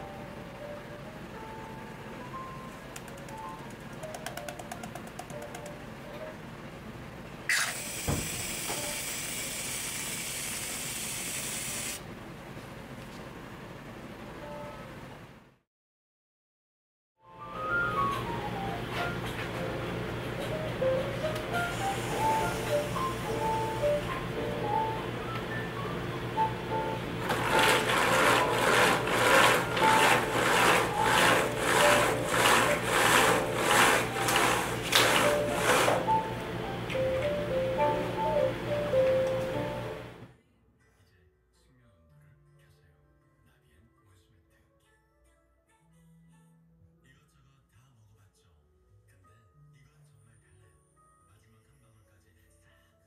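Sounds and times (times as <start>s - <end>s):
cream dispenser hissing: 7.5s - 12.0s, 21.4s - 24.0s, 27.2s - 36.4s
blind cord rasping: 27.1s - 36.4s.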